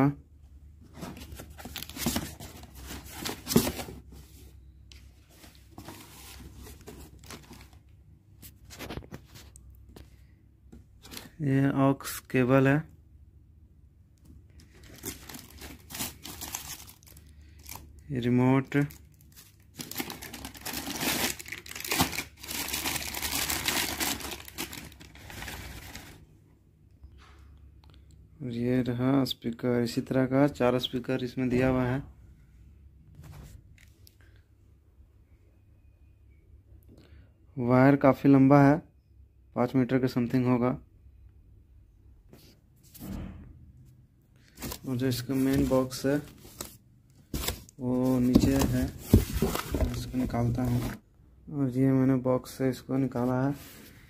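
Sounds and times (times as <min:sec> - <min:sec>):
cardboard scraping: 0:00.9 - 0:04.4, 0:44.6 - 0:51.0
plastic wrapping rustling: 0:14.6 - 0:17.9, 0:18.6 - 0:26.2, 0:44.5 - 0:51.0
plastic bag crinkling: 0:14.8 - 0:17.9, 0:18.7 - 0:26.2.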